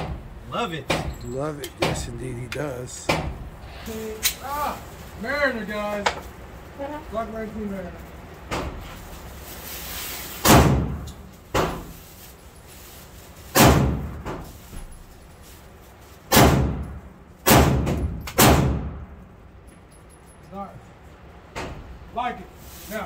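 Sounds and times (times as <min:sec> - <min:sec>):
gunshots ringing indoors: 0:16.3 - 0:19.0.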